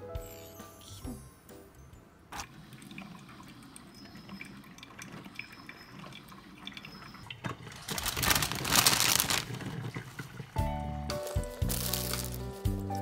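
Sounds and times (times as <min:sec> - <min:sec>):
coffee maker gurgling and dripping: 0:02.4 - 0:10.7.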